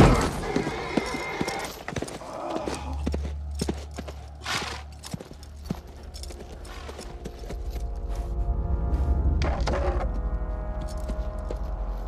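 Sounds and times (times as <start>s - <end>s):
horse hooves clopping: 0.0s - 8.6s, 9.4s - 12.0s.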